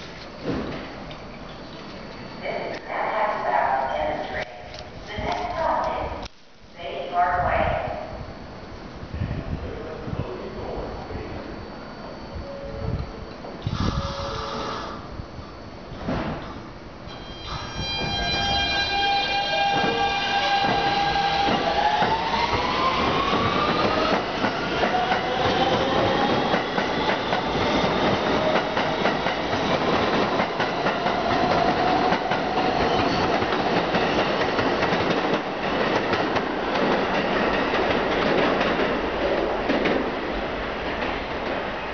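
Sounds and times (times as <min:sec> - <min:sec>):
subway train motors whining: 0:00.0 - 0:41.9
wheels clacking on rails: 0:17.9 - 0:40.1.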